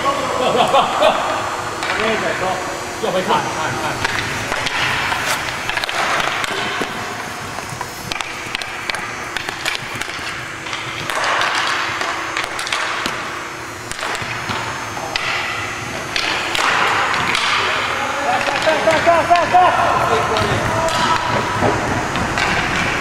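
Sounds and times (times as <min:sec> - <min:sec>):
hockey sticks and puck clacking: 0:01.8 - 0:02.2, 0:04.0 - 0:23.0
skates on ice: 0:04.1 - 0:13.0.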